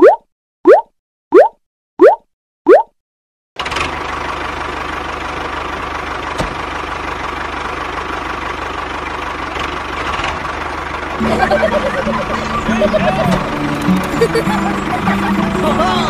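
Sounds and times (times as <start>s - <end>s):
tractor engine idling: 3.6s - 16.0s.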